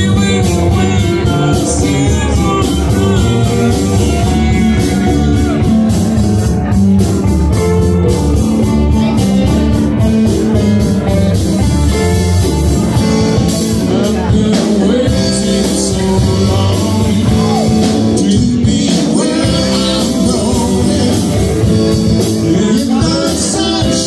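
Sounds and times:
congas played by hand: 0.0 - 15.0
loud rock band playing: 0.0 - 24.0.

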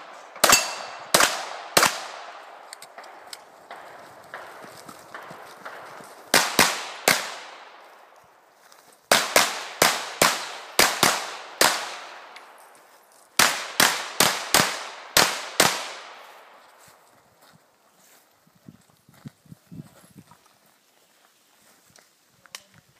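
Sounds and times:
pistol shots: 0.3 - 4.6, 5.2 - 7.7, 9.1 - 12.3, 13.4 - 16.1.

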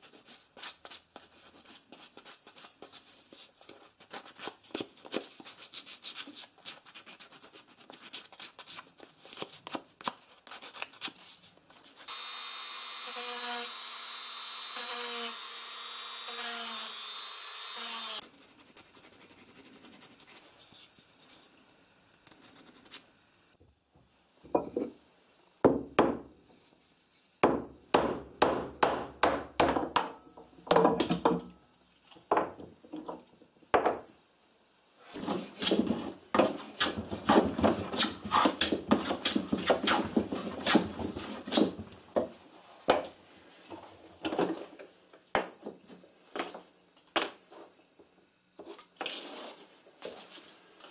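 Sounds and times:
rotary tool grinding wood: 12.1 - 18.2.

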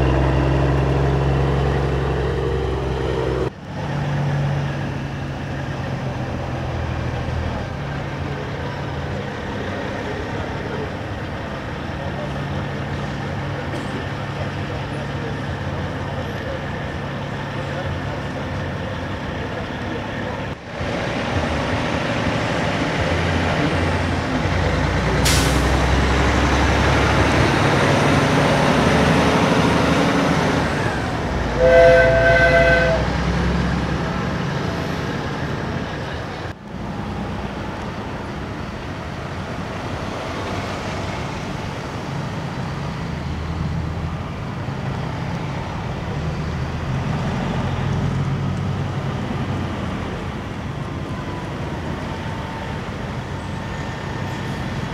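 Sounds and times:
truck diesel engines rumbling: 0.0 - 54.9
truck air horn: 31.5 - 33.1.

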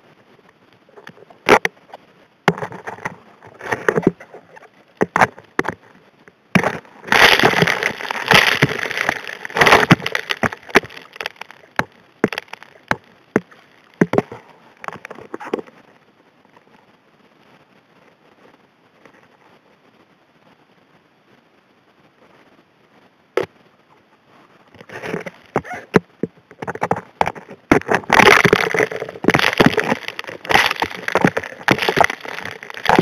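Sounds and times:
rocks clattering underwater: 1.0 - 1.8, 2.5 - 15.7, 24.8 - 33.0.

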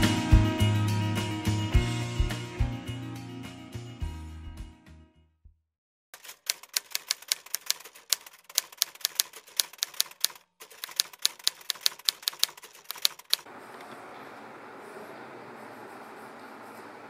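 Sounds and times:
typewriter keys clacking: 6.2 - 13.5
room noise hiss: 13.5 - 17.0.

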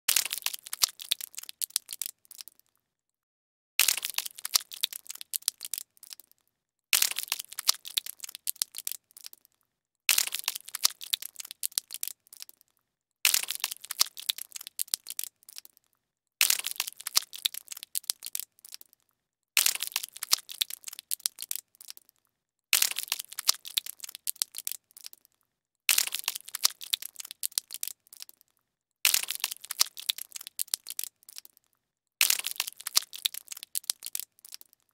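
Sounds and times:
gory crackling splatter effect: 0.1 - 2.6, 3.8 - 6.3, 7.0 - 9.5, 10.1 - 12.6, 13.3 - 15.8, 16.4 - 19.0, 19.6 - 22.1, 22.8 - 25.3, 25.9 - 28.5, 29.1 - 31.6, 32.2 - 34.8.

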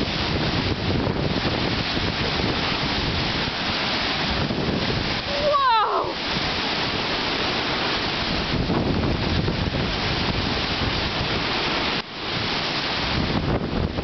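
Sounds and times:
waves washing over dock and shore: 0.0 - 14.0
wind buffeting microphone: 0.0 - 14.0.

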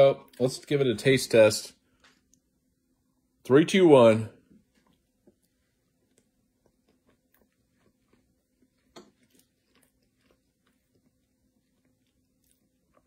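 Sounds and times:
faint chewing: 4.4 - 13.0.

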